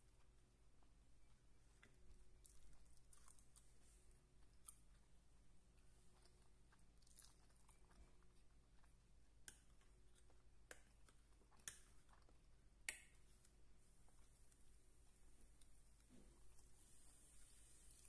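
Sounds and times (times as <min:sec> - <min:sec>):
faint chewing: 0:00.0 - 0:18.0.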